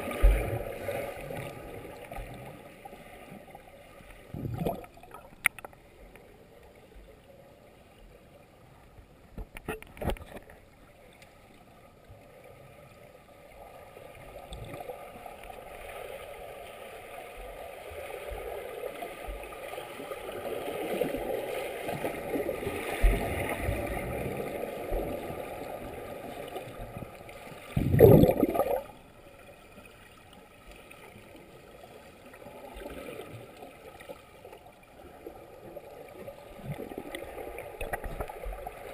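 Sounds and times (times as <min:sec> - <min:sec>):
muffled underwater swimming strokes: 0:12.1 - 0:38.9.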